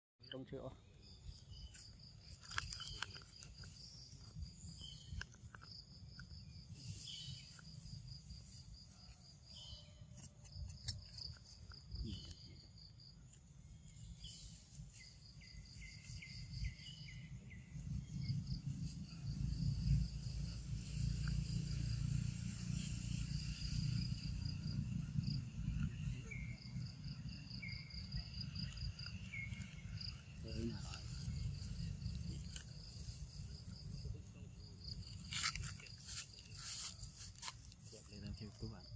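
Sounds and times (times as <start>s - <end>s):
lower insect trill: 0.2s - 38.9s
insects trilling in pulsed bursts: 0.3s - 38.9s
low rumble: 16.6s - 27.5s.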